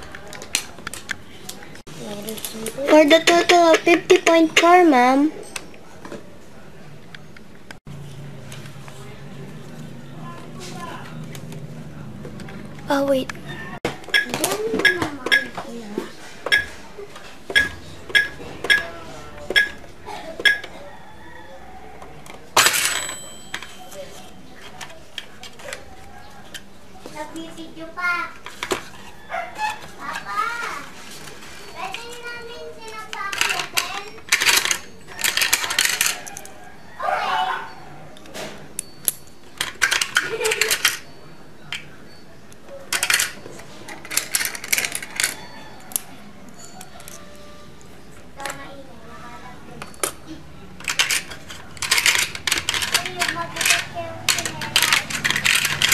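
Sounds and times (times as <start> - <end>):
plastic toy pieces and coins clicking: 2.1 - 5.7, 14.0 - 15.6, 16.4 - 16.8, 17.5 - 18.9, 19.5 - 19.8, 20.4 - 20.7, 22.6 - 25.8, 31.3 - 36.6, 38.2 - 41.9, 42.5 - 47.5, 49.7 - 55.9.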